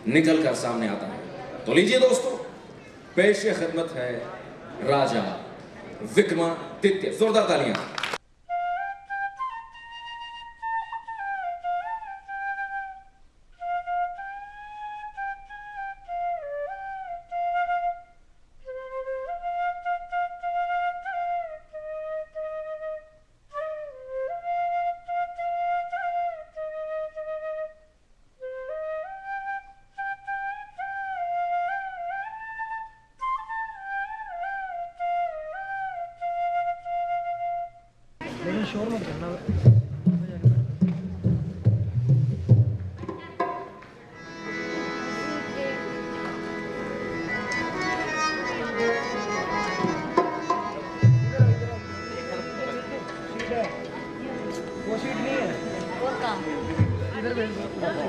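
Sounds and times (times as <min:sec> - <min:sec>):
solo flute melody: 0:08.4 - 0:38.0, 0:44.2 - 0:53.4.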